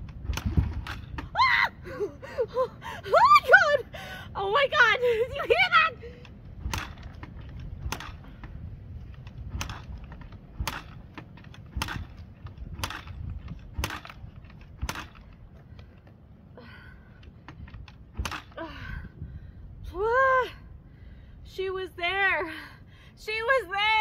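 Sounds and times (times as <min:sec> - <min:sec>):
kickstarter clacking: 0:06.2 - 0:16.1.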